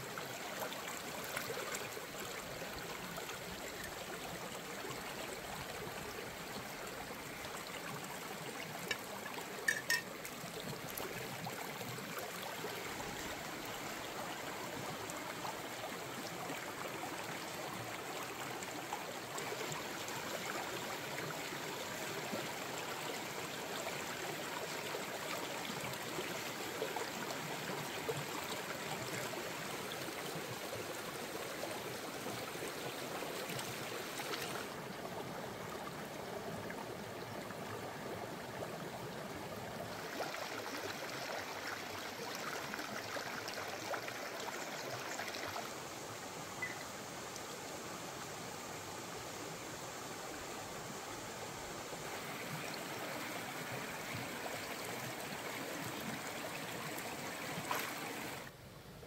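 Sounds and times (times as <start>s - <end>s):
water trickling: 5.4s - 16.7s, 46.6s - 46.9s.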